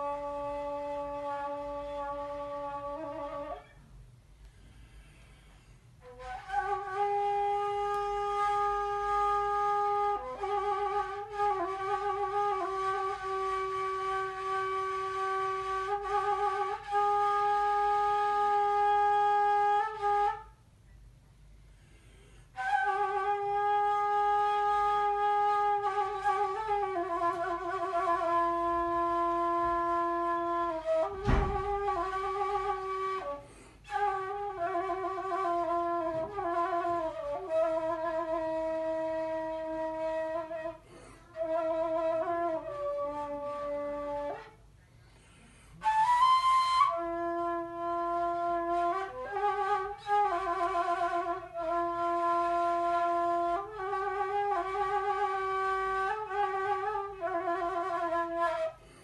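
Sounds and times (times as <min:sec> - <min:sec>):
wooden flute melody: 0:00.0 - 0:20.7, 0:21.8 - 0:59.0
low thump: 0:31.2 - 0:31.9.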